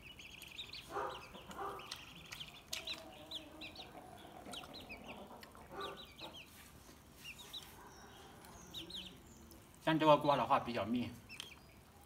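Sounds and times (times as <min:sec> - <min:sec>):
chickens clucking: 0:00.3 - 0:09.8.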